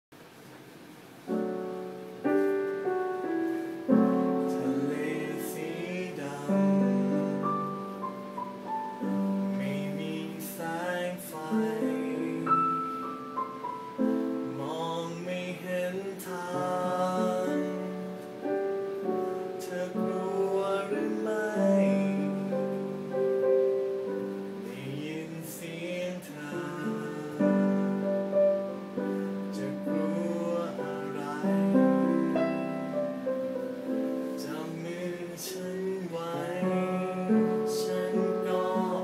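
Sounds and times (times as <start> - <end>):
piano chords: 1.0 - 39.0
man singing: 3.9 - 8.0, 9.0 - 13.2, 14.0 - 18.6, 19.5 - 23.3, 24.1 - 33.0, 34.2 - 39.0.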